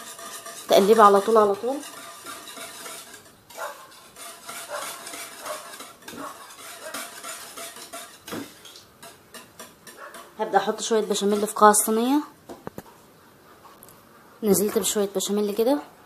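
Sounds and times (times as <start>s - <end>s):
whisk scraping metal pot: 0.0s - 12.1s.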